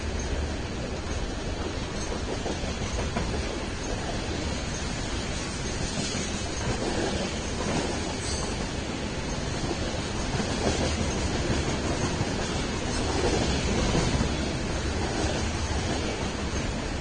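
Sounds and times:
freight train rumbling past: 0.0 - 17.0.

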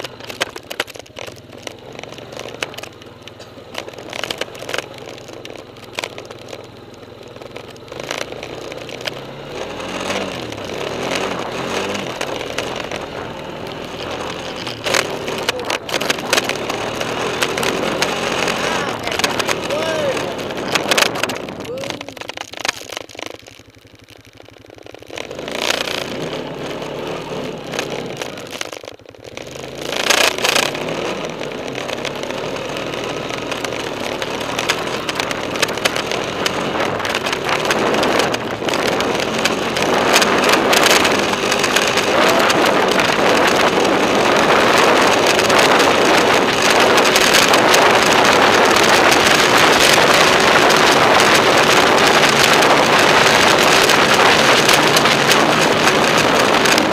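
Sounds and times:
quad bike engine running: 0.0 - 56.9
dense rushing noise: 9.5 - 23.2, 29.7 - 56.9.

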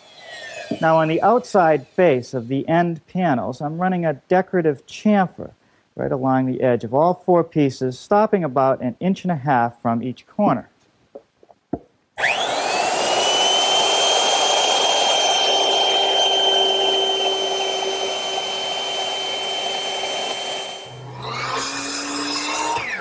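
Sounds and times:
miter saw motor starting: 0.0 - 2.0, 12.2 - 23.0
router cutting wood: 0.0 - 2.4, 12.2 - 23.0.

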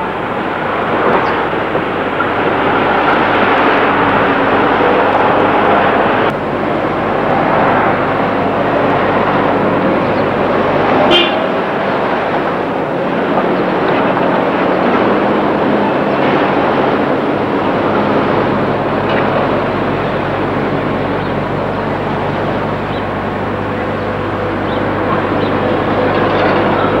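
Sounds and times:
street traffic noise: 0.0 - 27.0
short high horn toot: 11.0 - 11.6.

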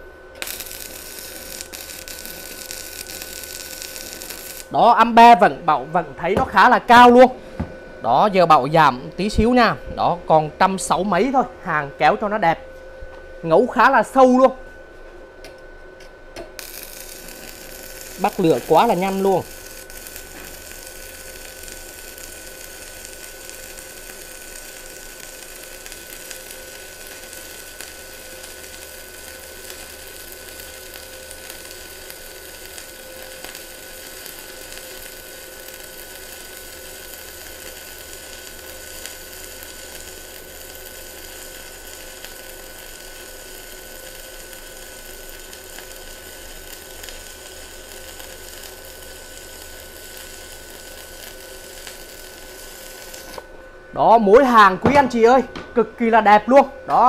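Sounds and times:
welding arc sizzling and popping: 0.0 - 10.0, 15.4 - 53.6, 54.2 - 56.2
steady high tone: 4.4 - 12.8.

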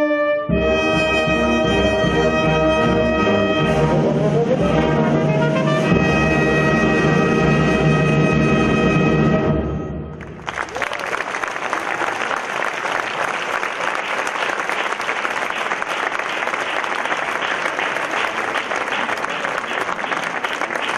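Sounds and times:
solo trumpet: 0.0 - 10.1
audience applause: 10.2 - 20.9.

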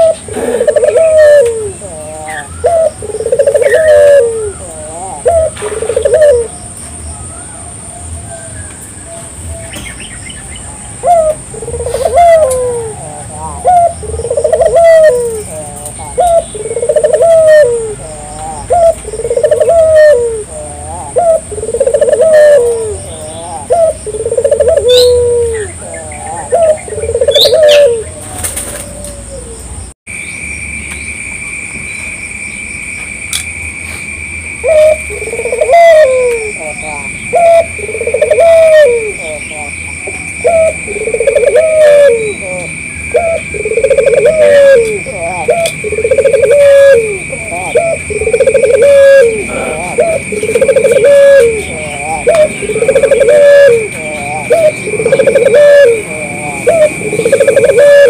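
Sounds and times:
dove cooing: 0.0 - 6.7, 10.9 - 29.7, 34.6 - 58.0.

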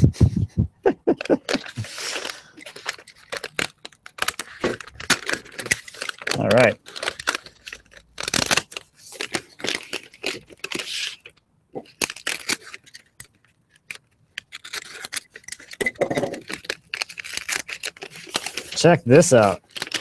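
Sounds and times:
paper tearing and crinkling: 1.3 - 20.0.

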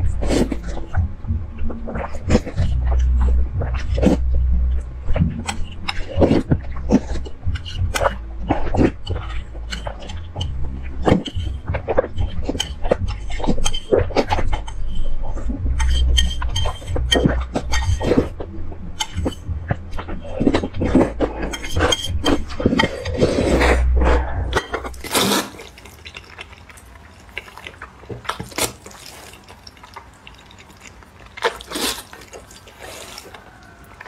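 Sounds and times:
slurping and chewing noodles: 0.0 - 4.4, 5.0 - 34.0
steady low hum: 0.0 - 34.0.

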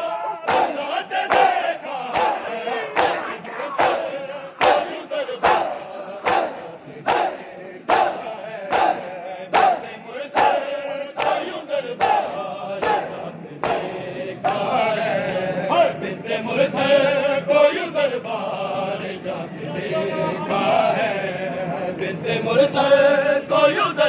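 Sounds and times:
men chanting together: 0.0 - 24.0
hands slapping chests: 0.5 - 9.8, 11.2 - 11.4.

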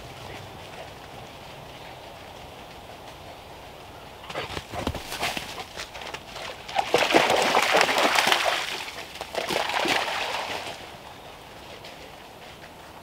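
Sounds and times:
dog splashing through water: 4.2 - 11.0.

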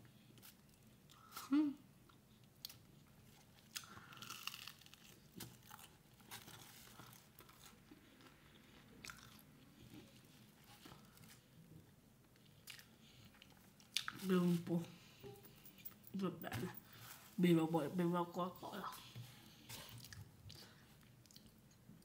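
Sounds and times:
chewing crunchy food: 2.0 - 14.3, 19.1 - 22.0.

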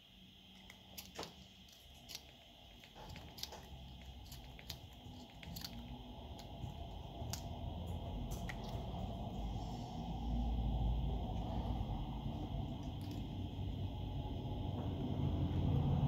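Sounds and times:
plastic clicks and crinkles: 0.5 - 6.6
low rumble: 2.2 - 16.0.

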